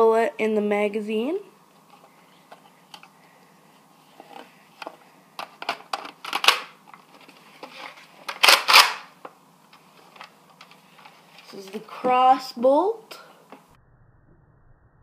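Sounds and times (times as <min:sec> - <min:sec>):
plastic toy blaster clicks: 0:08.3 - 0:09.1.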